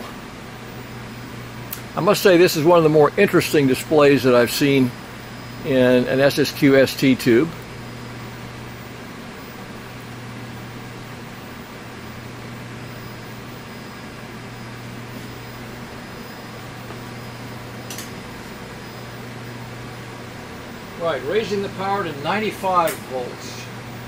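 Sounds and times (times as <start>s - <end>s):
fan-like hiss: 0.0s - 24.0s
low electrical hum: 0.0s - 24.0s.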